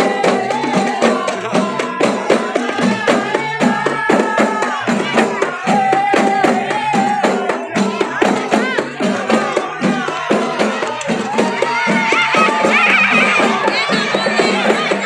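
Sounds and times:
frame drums beaten in rhythm: 0.0 - 15.0
voices chanting a melody: 0.0 - 15.0.

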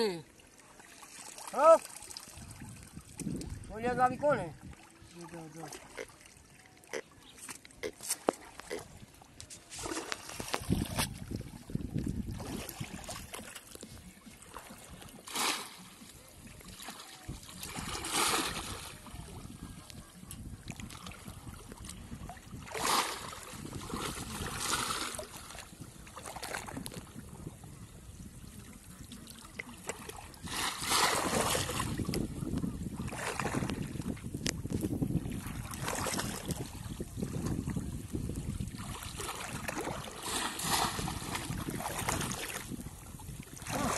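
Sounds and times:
shallow water splashing: 0.0 - 27.4, 28.2 - 43.9.

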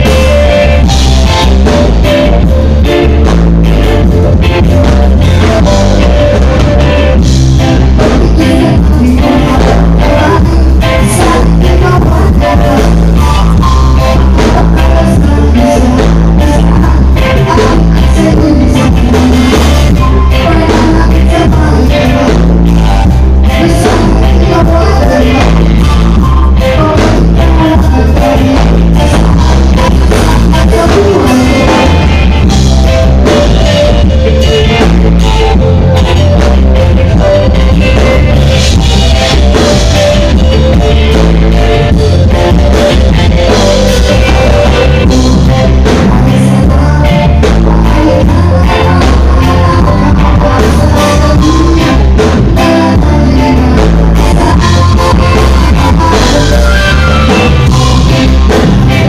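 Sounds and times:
heavy bass: 0.0 - 59.0
live reggae band playing: 0.0 - 59.0
man singing into microphone: 7.8 - 32.4, 43.8 - 59.0.

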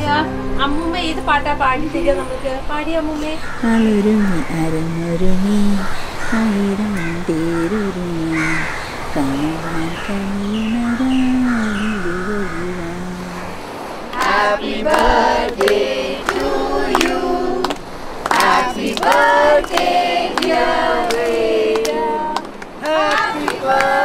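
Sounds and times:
group of voices singing: 3.6 - 24.0
hand claps: 14.1 - 24.0.

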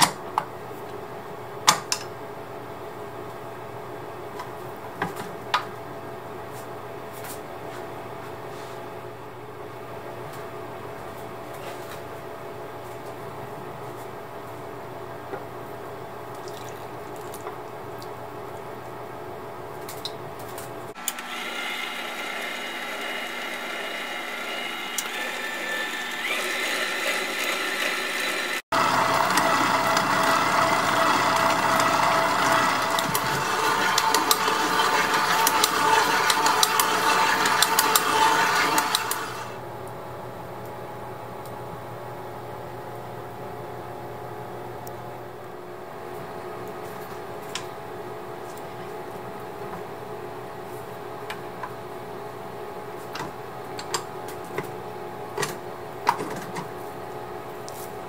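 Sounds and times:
stand mixer motor whine: 21.0 - 39.6.

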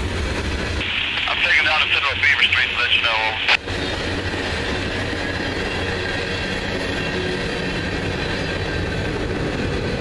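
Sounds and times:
train wheels on rail: 3.0 - 10.0.

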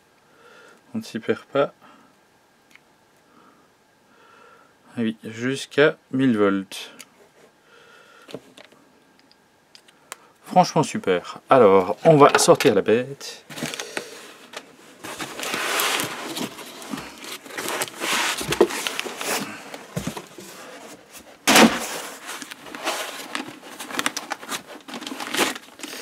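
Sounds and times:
rustling: 13.5 - 26.0
foam scraping against cardboard box: 15.0 - 19.4.

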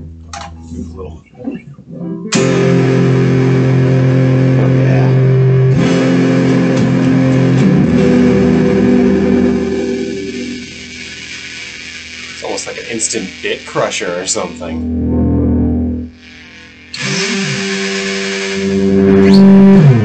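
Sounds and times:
fuzz electric guitar chord: 0.0 - 20.0.

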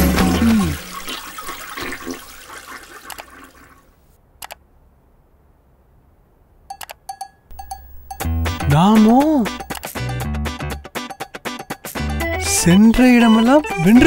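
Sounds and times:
toilet flushing: 0.0 - 4.0.

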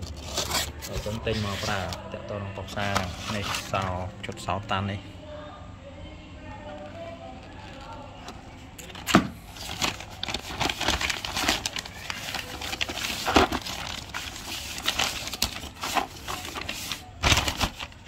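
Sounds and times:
plastic bag crinkling: 8.8 - 18.0.

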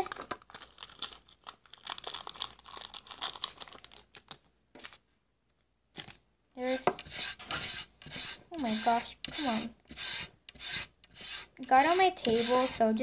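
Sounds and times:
plastic packet crinkling: 0.0 - 5.0, 6.0 - 6.2.

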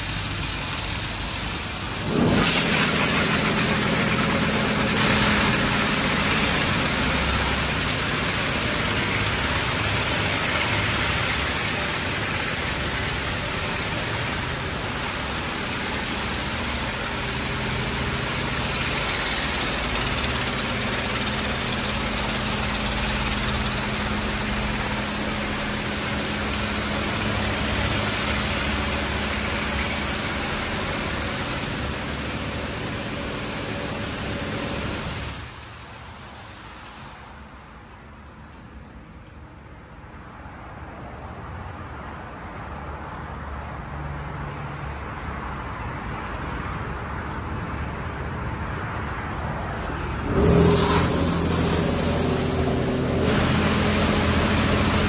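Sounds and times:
low machine hum: 0.0 - 35.4, 49.8 - 55.0
high-pressure water spray on car: 0.0 - 37.4, 50.3 - 55.0.

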